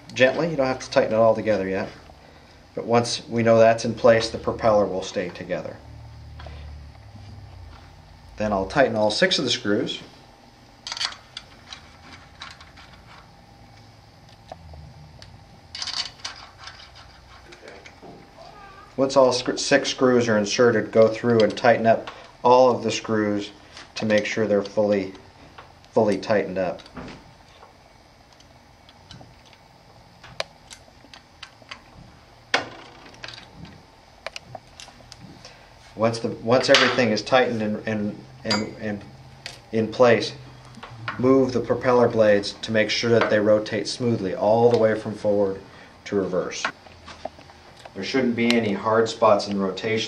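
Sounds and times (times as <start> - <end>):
metal screws clicking and scraping: 15.7 - 17.9.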